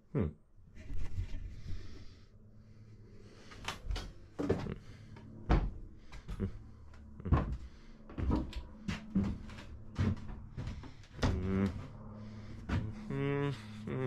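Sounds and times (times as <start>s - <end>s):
person humming: 0.0s - 0.4s, 6.3s - 7.6s, 9.0s - 9.6s, 11.2s - 12.0s, 12.7s - 14.0s
faint low hum: 0.1s - 14.0s
footsteps on wooden floor: 3.9s - 13.1s.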